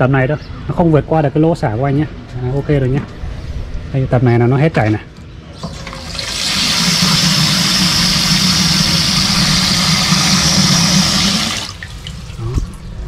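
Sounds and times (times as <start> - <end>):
water rushing into a tank: 5.6 - 13.0.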